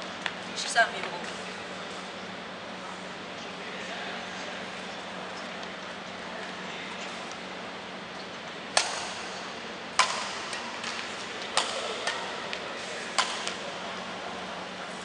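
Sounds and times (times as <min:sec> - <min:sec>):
badminton racket hitting shuttlecock: 0:08.8 - 0:09.4, 0:10.0 - 0:12.4, 0:13.0 - 0:13.6.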